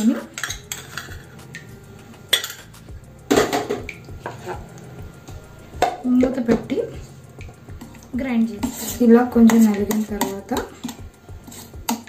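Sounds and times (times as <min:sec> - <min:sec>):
spoon scraping steel cup: 0:00.0 - 0:04.6, 0:07.8 - 0:12.0
steel pieces knocking together: 0:02.3 - 0:02.7.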